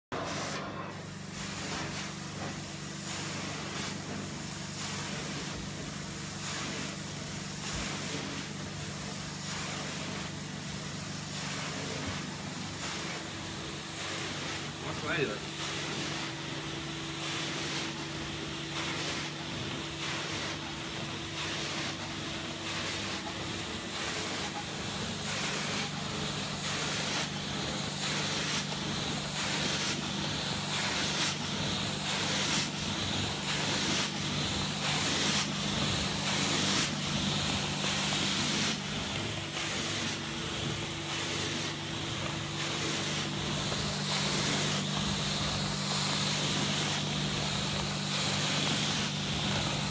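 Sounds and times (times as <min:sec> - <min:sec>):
water spray and suction hiss: 0:01.3 - 0:49.9
carpet cleaner motor hum: 0:28.8 - 0:49.9.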